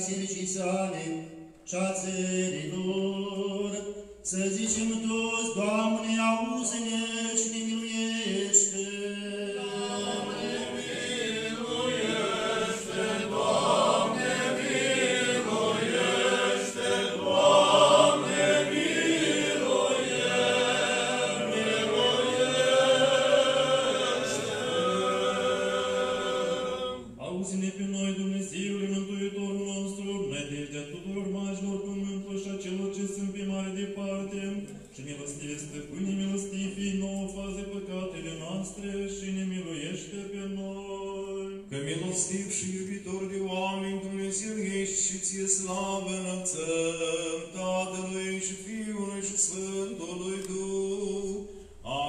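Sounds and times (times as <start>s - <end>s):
group chanting a cappella: 8.2s - 27.3s.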